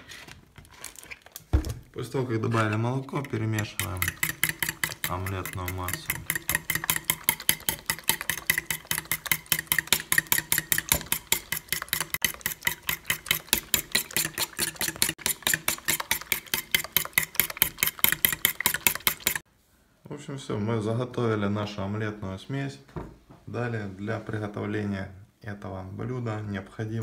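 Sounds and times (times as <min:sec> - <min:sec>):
fork clinking against metal bowl: 0:03.2 - 0:18.7.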